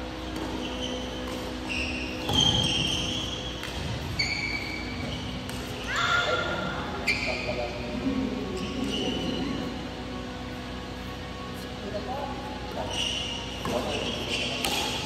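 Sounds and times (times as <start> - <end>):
steady low hum: 0.0 - 15.0
shoes squeaking on court: 0.1 - 6.3, 6.9 - 10.2, 12.6 - 15.0
racket hitting shuttlecock: 0.2 - 4.2, 4.8 - 5.8, 13.4 - 15.0.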